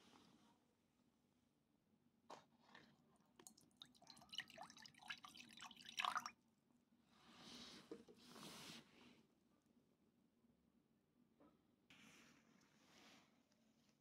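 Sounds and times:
juice glugging into bowl: 2.8s - 6.3s.

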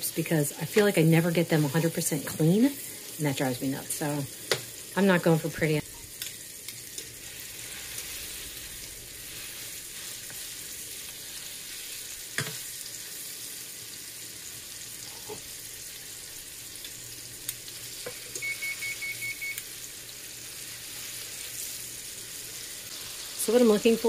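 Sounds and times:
butter sizzling in a skillet: 0.0s - 24.0s.

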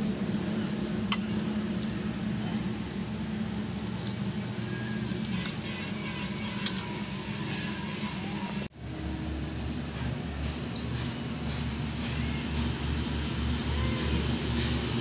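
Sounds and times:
metal ladle clinking and scraping: 3.7s - 7.8s.

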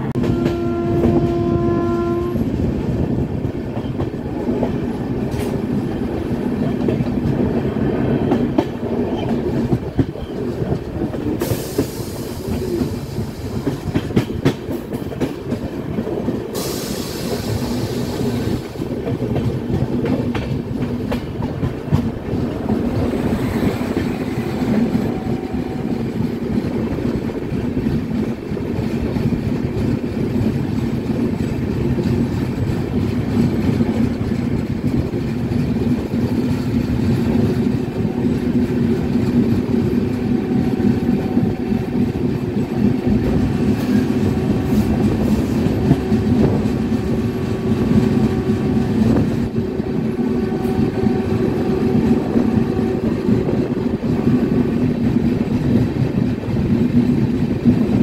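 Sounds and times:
clickety-clack over rail joints: 0.0s - 58.0s
train wheels rumbling on rail: 0.0s - 58.0s
high hiss: 16.6s - 18.8s.

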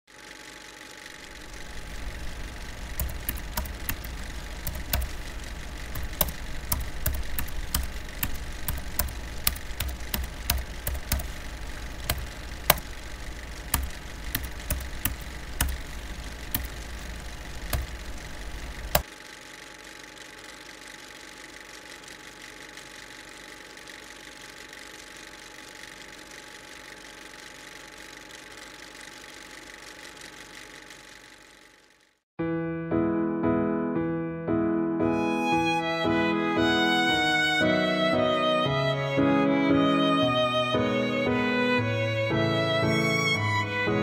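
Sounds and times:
low mechanical rumble: 0.1s - 32.0s
keyboard keystroke clicks: 1.4s - 19.1s.

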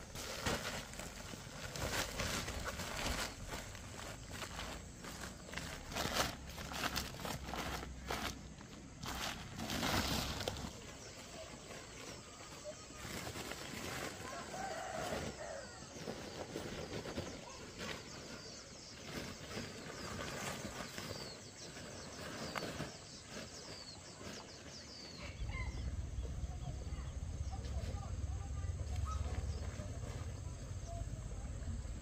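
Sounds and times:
compost rustling and thudding: 0.0s - 31.0s.

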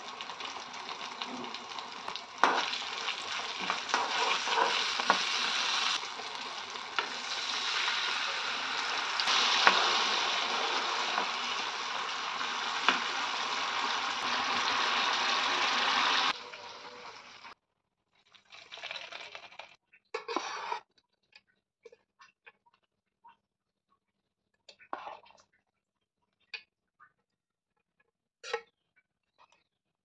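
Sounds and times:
hot oil sizzling in a pan: 0.0s - 17.6s
liquid poured into hot oil: 18.2s - 19.8s.

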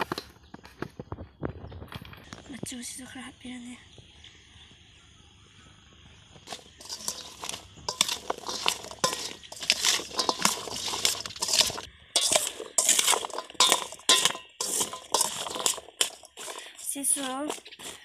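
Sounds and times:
spoon scraping a metal bowl: 6.5s - 18.0s.

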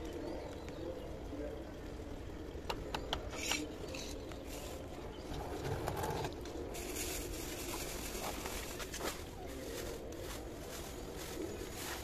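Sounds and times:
pigeons cooing: 0.0s - 8.2s
roots and potting medium rustling: 3.4s - 12.0s.

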